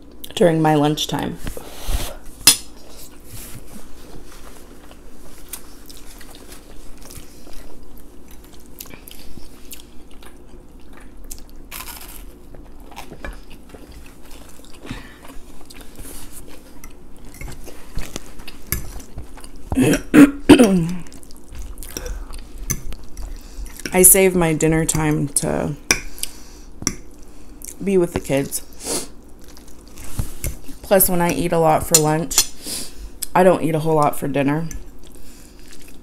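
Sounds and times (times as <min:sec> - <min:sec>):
chewing spaghetti: 0:04.5 - 0:20.1, 0:20.9 - 0:24.0, 0:29.2 - 0:31.4, 0:34.8 - 0:36.0.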